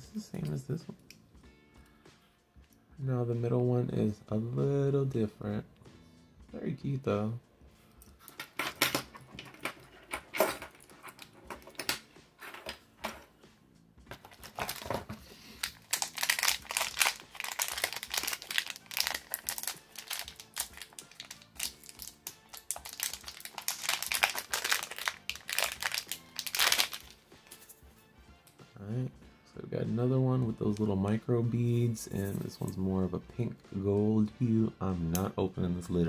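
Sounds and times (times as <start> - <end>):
plastic wrapper crinkling: 14.2 - 27.2.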